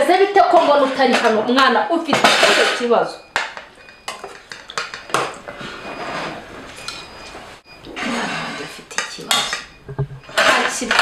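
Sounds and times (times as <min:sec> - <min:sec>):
cutlery and dishes clinking: 0:02.2 - 0:07.3, 0:08.1 - 0:11.0.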